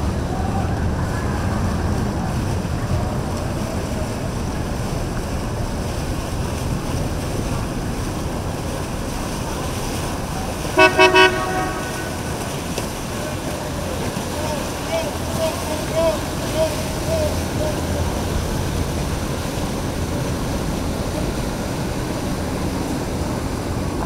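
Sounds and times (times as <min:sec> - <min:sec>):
boat motors rumbling: 0:00.0 - 0:24.0
water: 0:00.0 - 0:24.0
horn toots: 0:10.7 - 0:12.6.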